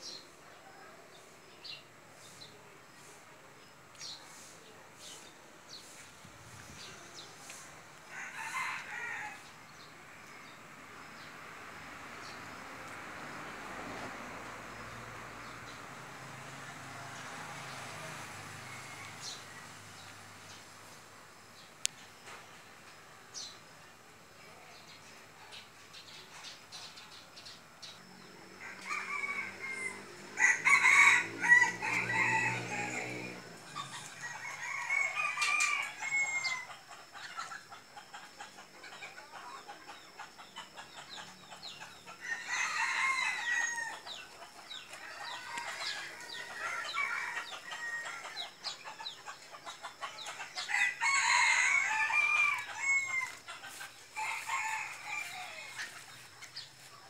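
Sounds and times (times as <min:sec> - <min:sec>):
roosters crowing: 0:06.8 - 0:10.6, 0:15.5 - 0:20.6, 0:28.1 - 0:57.0
chickens clucking: 0:31.9 - 0:34.7, 0:35.4 - 0:42.6, 0:43.5 - 0:57.0.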